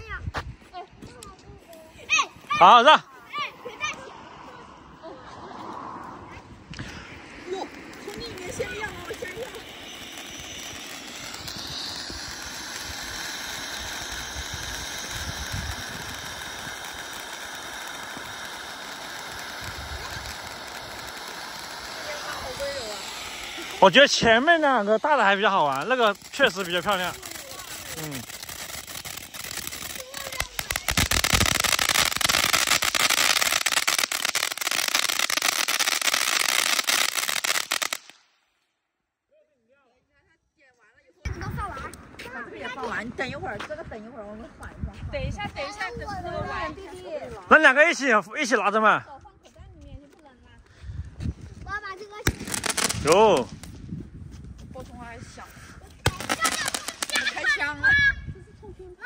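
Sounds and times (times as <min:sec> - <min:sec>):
firework hissing: 0:01.7 - 0:38.4, 0:45.1 - 0:49.0, 0:50.8 - 0:54.0, 0:55.1 - 0:58.2.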